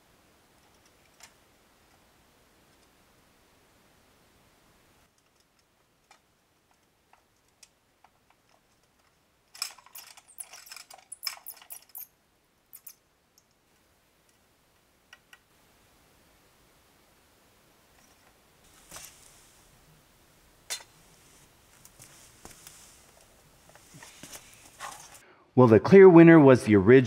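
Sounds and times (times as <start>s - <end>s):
mice clicking and scrabbling in trap: 5.1s - 12.1s, 12.7s - 13.0s.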